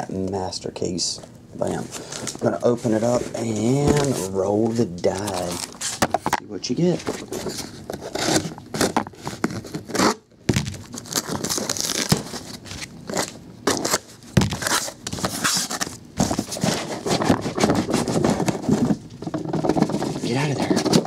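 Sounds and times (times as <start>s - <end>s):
scissors slitting packing tape: 11.0s - 12.3s.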